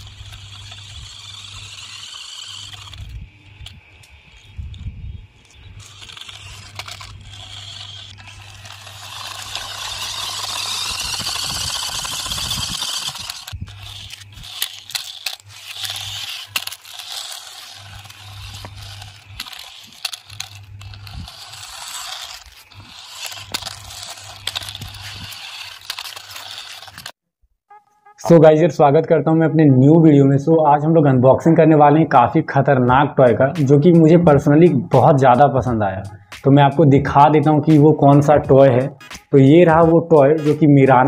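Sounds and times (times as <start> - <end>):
electric motors whining: 0.0 - 27.2
steady low hum: 0.0 - 27.2
plastic toy car clattering on ground: 5.8 - 27.1.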